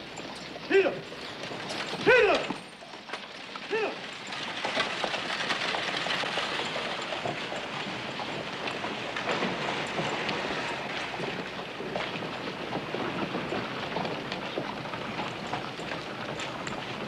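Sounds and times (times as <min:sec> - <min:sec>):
coach wheels rattling: 0:00.0 - 0:17.0
hooves clattering: 0:00.0 - 0:17.0
man shouting: 0:00.7 - 0:01.0, 0:02.0 - 0:02.6, 0:03.7 - 0:04.0.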